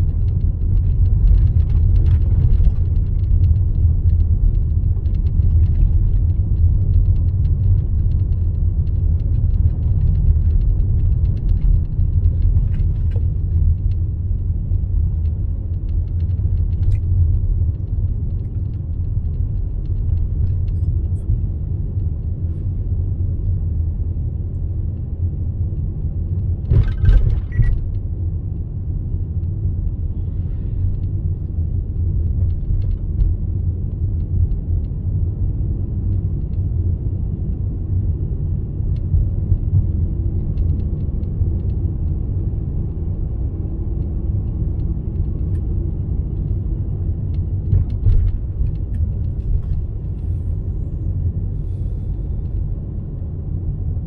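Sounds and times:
car cabin road rumble: 0.0s - 54.0s
brief clatter: 26.6s - 28.0s.

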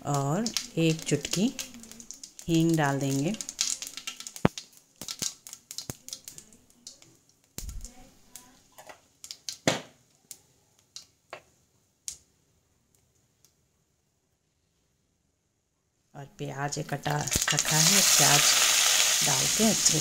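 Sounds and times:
seeds popping in hot oil: 0.0s - 12.3s, 17.0s - 20.0s.

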